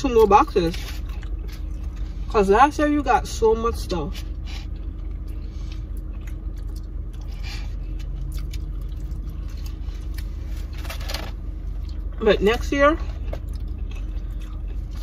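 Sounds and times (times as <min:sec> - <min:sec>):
car interior hum: 0:00.0 - 0:15.0
person chewing and eating: 0:00.2 - 0:02.3, 0:04.1 - 0:12.2, 0:13.1 - 0:15.0.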